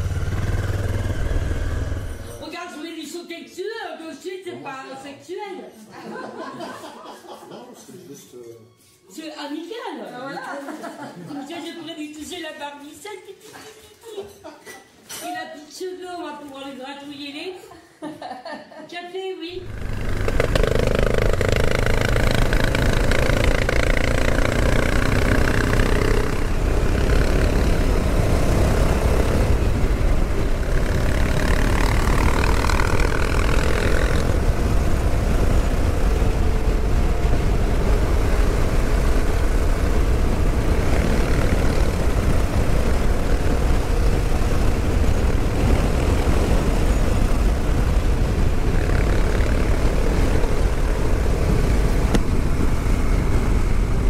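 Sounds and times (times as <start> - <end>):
motorcycle engine accelerating: 0.0 - 2.4, 19.6 - 54.0
wind noise on microphone: 19.6 - 54.0.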